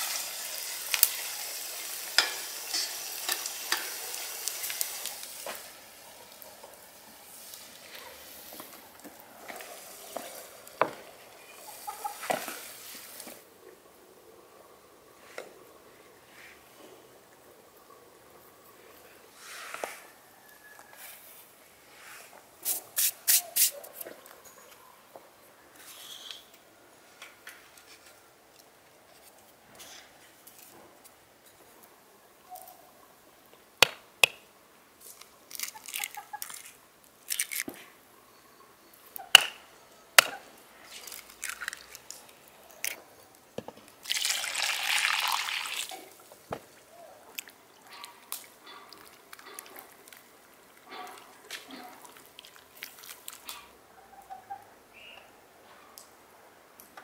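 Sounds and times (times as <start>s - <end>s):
liquid pouring into flour: 44.0s - 45.9s.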